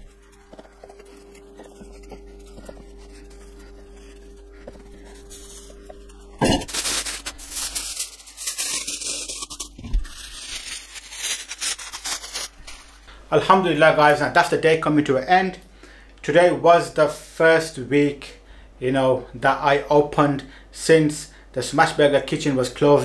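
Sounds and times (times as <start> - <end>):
aluminium foil crinkling and tearing: 0.0 - 13.1
low hum: 0.0 - 13.4.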